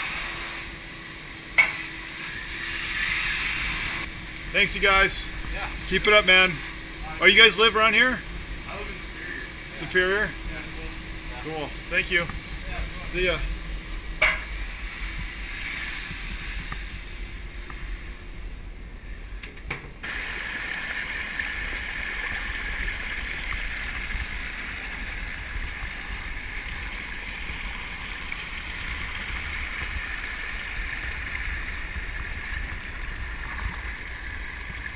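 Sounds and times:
water rushing over ground: 20.0s - 34.9s.

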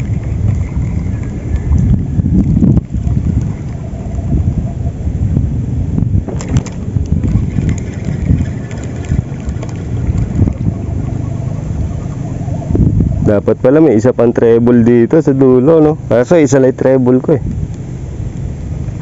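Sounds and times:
wind buffeting microphone: 0.0s - 19.0s
faint clicks: 6.4s - 10.6s.

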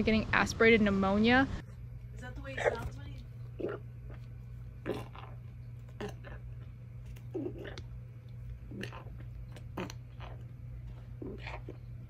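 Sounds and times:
puppy gulping and gagging: 3.5s - 12.0s.

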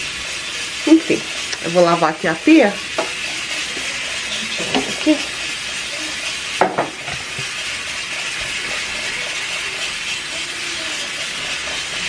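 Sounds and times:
pressure cooker hissing: 0.0s - 12.0s.

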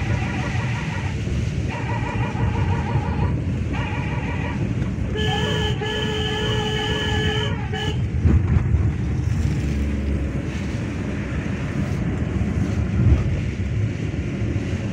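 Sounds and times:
bus engine rumbling: 0.0s - 14.9s
wind buffeting microphone: 6.6s - 14.9s.

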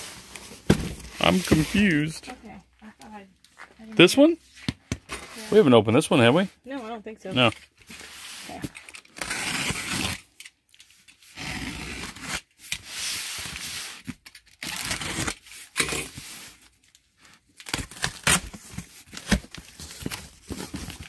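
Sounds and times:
box cutter slicing tape: 9.0s - 10.3s, 11.3s - 12.9s, 14.5s - 16.2s, 17.6s - 18.6s.

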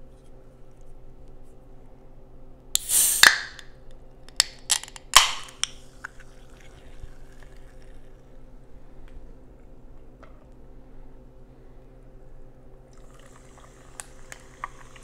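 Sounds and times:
can carbonation hissing: 2.8s - 3.7s, 4.4s - 8.3s, 12.9s - 15.0s
can pull-tab cracking: 2.8s - 3.7s, 4.3s - 6.2s.

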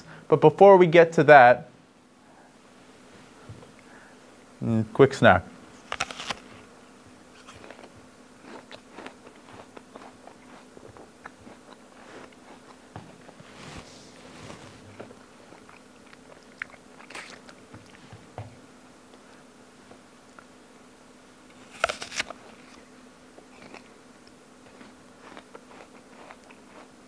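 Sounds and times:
apple bite crunch: 5.8s - 6.5s, 7.3s - 12.8s, 15.0s - 18.0s, 21.5s - 22.8s, 23.4s - 27.0s
person chewing crisp apple: 5.9s - 6.5s, 7.3s - 13.5s, 14.8s - 18.0s, 21.6s - 27.0s.

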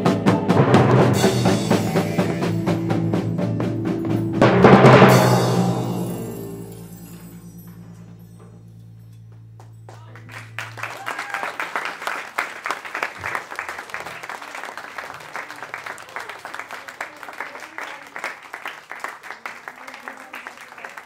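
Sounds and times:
low timpani note: 0.4s - 11.8s
applause: 1.8s - 2.8s, 9.6s - 21.0s.

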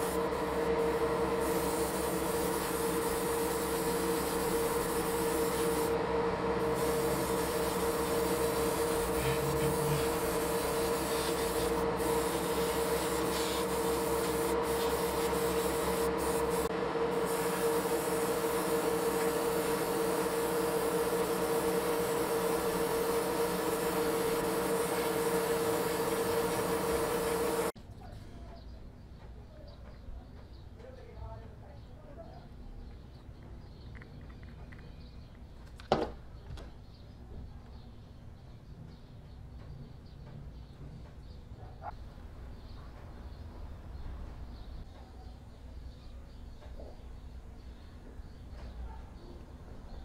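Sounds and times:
airbrush spraying hiss: 0.0s - 6.0s, 6.6s - 27.8s
extractor fan humming: 0.0s - 27.8s.

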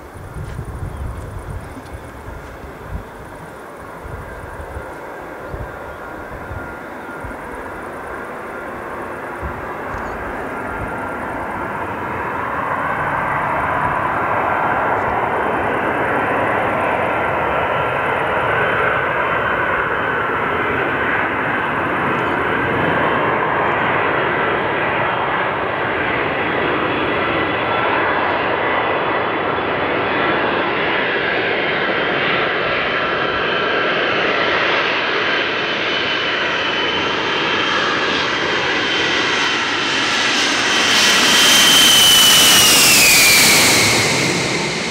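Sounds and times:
jet engines rushing with whine: 0.0s - 44.9s.

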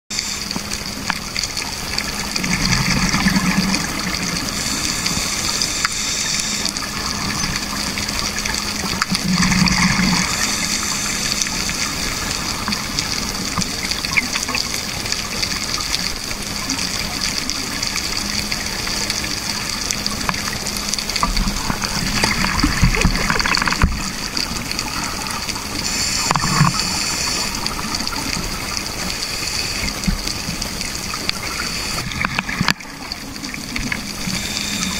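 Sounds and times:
exhaled bubbles gurgling: 0.1s - 34.9s
steady underwater hiss: 0.1s - 34.9s.

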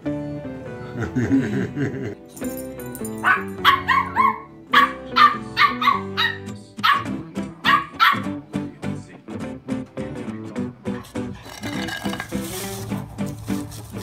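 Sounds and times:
background music: 0.0s - 14.0s
puppy yapping: 3.2s - 8.3s.

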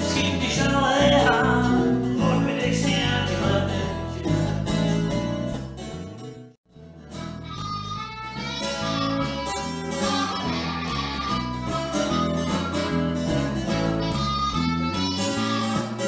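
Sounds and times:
strummed acoustic guitar: 0.0s - 16.0s
walking bass guitar: 0.0s - 16.0s
harmonica bending notes: 7.5s - 16.0s.

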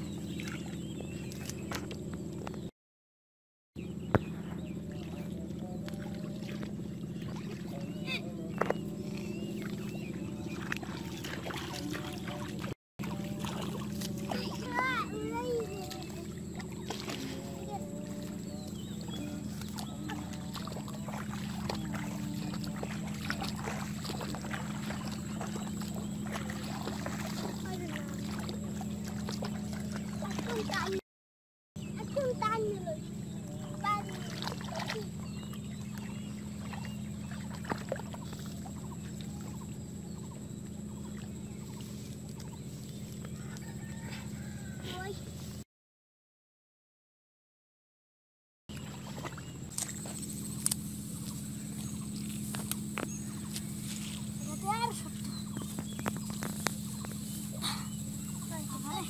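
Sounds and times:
engine droning: 0.0s - 2.7s, 3.8s - 31.0s, 31.8s - 45.6s, 48.7s - 59.0s
steady low hum: 0.0s - 2.7s, 3.8s - 31.0s, 31.8s - 45.6s, 48.7s - 59.0s
water splashing and dripping: 4.9s - 31.0s, 33.8s - 39.6s, 48.7s - 59.0s
seedlings rustling in muddy water: 9.2s - 31.0s, 48.7s - 59.0s.

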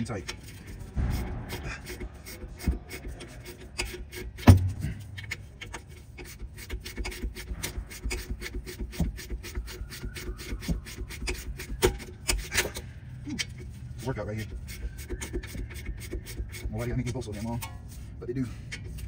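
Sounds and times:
hand ratchet clicking: 1.6s - 13.7s.

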